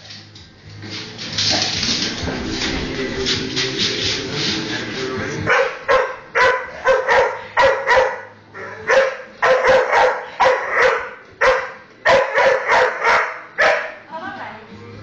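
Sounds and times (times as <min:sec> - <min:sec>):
dog barking sharply: 0:08.9 - 0:14.0.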